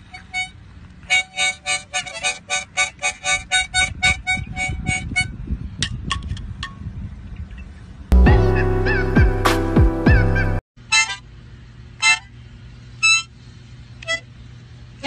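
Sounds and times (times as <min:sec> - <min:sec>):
harmonica puffs: 0:00.0 - 0:05.4, 0:08.2 - 0:11.3, 0:12.0 - 0:12.4, 0:14.0 - 0:14.4
loud music: 0:08.1 - 0:10.6.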